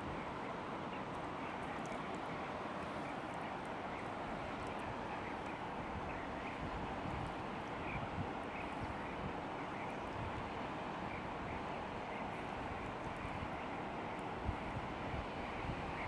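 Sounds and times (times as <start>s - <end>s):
river water rushing: 0.0s - 16.0s.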